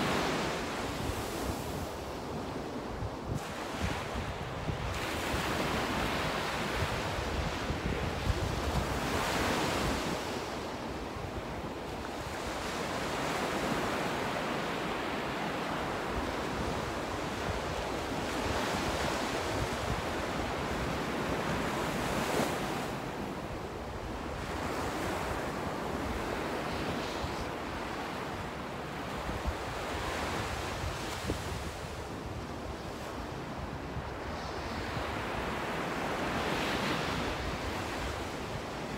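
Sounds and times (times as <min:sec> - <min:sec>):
ocean surf breaking on sand: 0:00.0 - 0:38.9
wind rumbling on microphone: 0:03.0 - 0:10.4.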